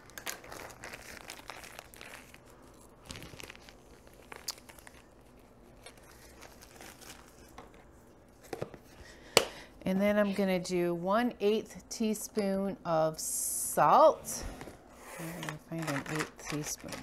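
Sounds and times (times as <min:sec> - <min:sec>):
bag crinkling and rustling: 0:00.0 - 0:08.5.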